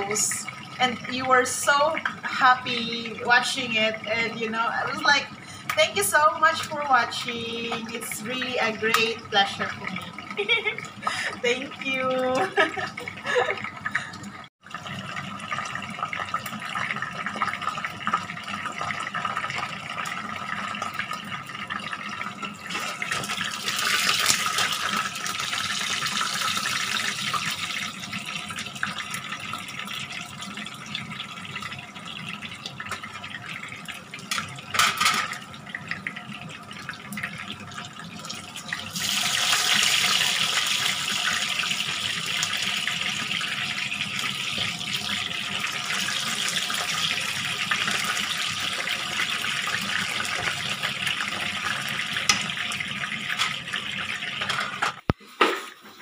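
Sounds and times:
chicken sizzling in oil: 22.3s - 55.2s.

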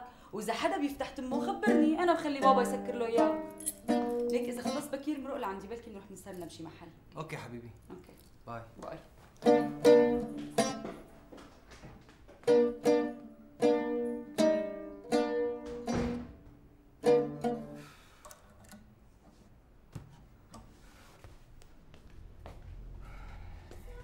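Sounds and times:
oud plucked notes: 1.4s - 4.9s, 9.4s - 11.1s, 12.4s - 18.0s.

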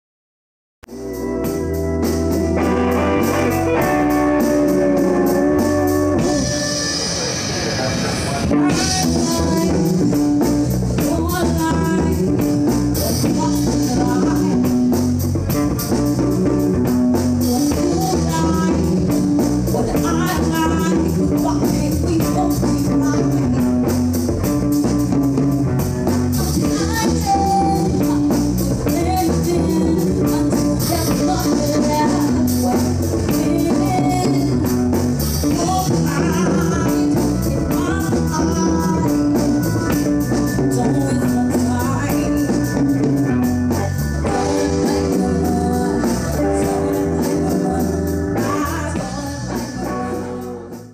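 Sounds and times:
live rock band playing: 0.8s - 50.9s
man singing into microphone: 8.1s - 10.0s, 43.8s - 50.9s.

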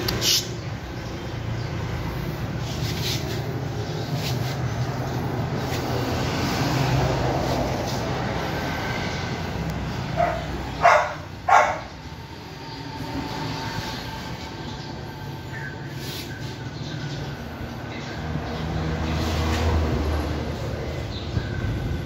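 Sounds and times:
dog barking: 10.1s - 12.0s.

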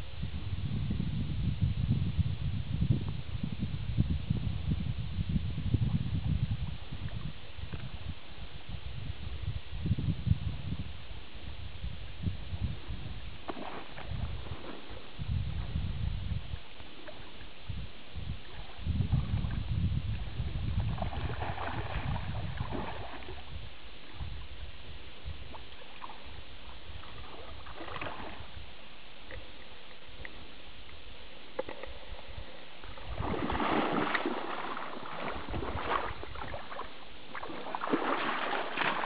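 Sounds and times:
water splashing: 13.5s - 15.1s, 20.8s - 23.6s, 25.5s - 28.6s, 32.9s - 39.0s
fish thrashing in water: 33.1s - 39.0s.

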